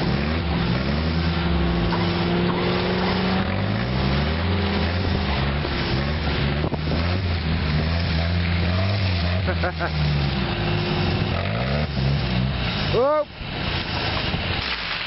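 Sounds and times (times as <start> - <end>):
car engine revving: 0.0 - 14.6.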